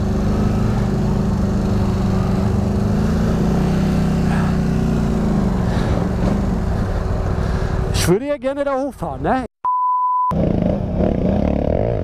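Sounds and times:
quad bike engine running: 0.0s - 7.8s, 10.3s - 12.0s.

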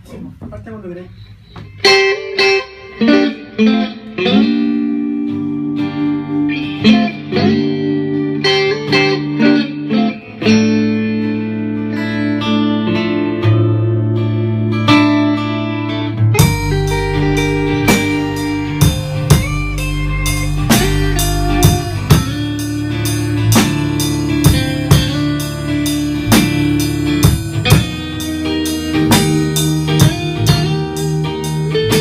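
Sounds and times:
electric guitar: 1.1s - 32.0s
drum kit beat: 16.2s - 32.0s.

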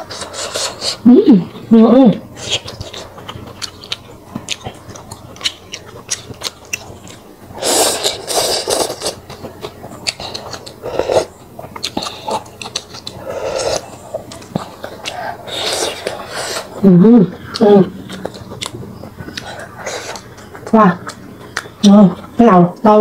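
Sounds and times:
slurping: 0.0s - 1.0s, 6.1s - 21.8s
chewing: 0.0s - 22.9s.

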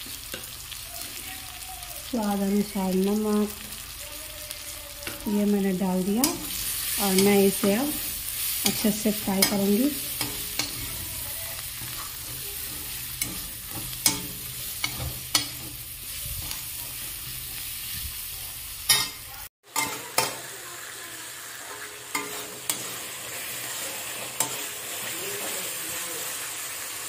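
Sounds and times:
masala sizzling in a pan: 0.0s - 27.0s
spatula scraping a metal pan: 6.2s - 18.0s, 21.6s - 24.7s.

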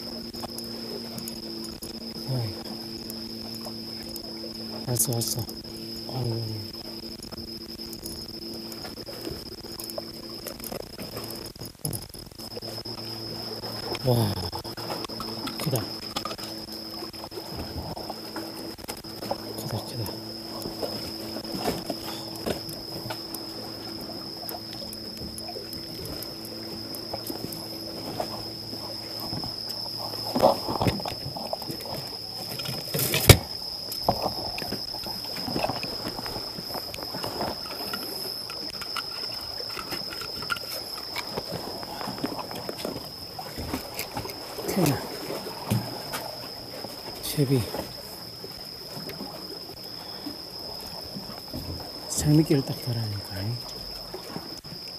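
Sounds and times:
crickets trilling: 0.0s - 54.9s
fishing gear knocks and clicks: 0.2s - 45.0s
clicks and rustles of handling: 30.2s - 44.4s.

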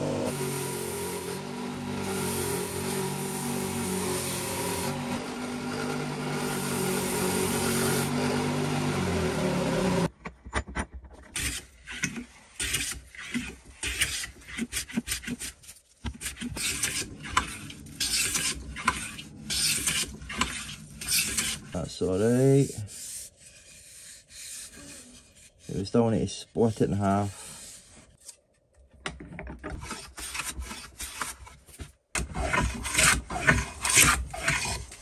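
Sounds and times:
belt sander running: 0.0s - 10.1s
hand plane strokes on wood: 0.1s - 10.1s, 11.4s - 28.2s, 32.3s - 35.0s.

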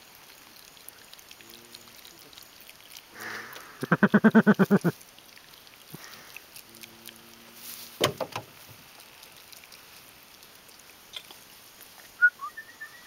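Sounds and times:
low outdoor background: 0.0s - 13.0s
cluster of knocks: 8.0s - 8.5s.

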